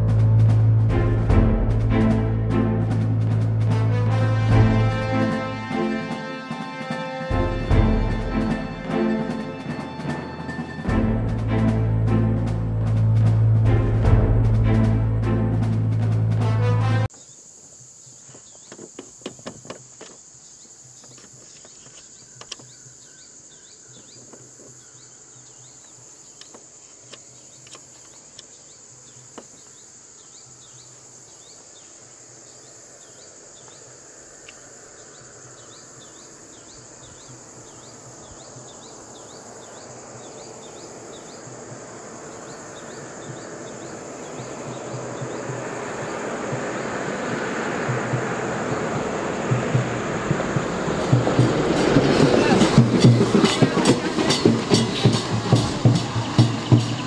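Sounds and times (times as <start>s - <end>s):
bird chirps: 17.1s - 57.0s
rushing noise: 34.1s - 57.0s.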